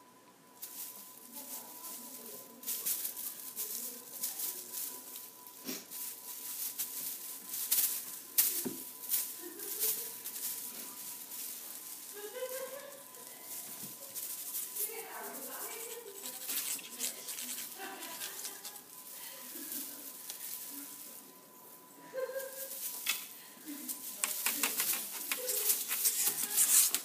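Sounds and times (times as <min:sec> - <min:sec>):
tinsel toy crinkling and rattling: 0:00.5 - 0:27.0
sharp clicks and rustles: 0:01.8 - 0:19.2, 0:22.6 - 0:23.3, 0:23.9 - 0:27.0.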